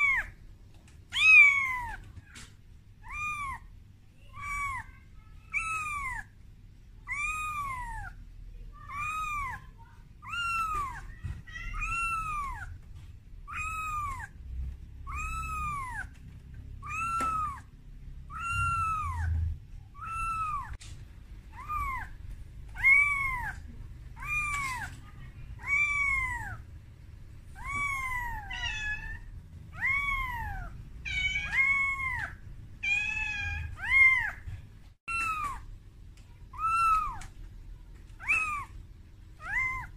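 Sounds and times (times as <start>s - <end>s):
kitten meowing: 0.0s - 0.4s, 1.1s - 2.2s, 3.0s - 3.7s, 4.3s - 6.3s, 7.0s - 8.2s, 8.9s - 14.4s, 15.0s - 16.2s, 16.8s - 20.8s, 21.5s - 26.6s, 27.6s - 34.5s, 35.1s - 35.7s, 36.5s - 37.3s, 38.2s - 38.8s, 39.4s - 39.9s.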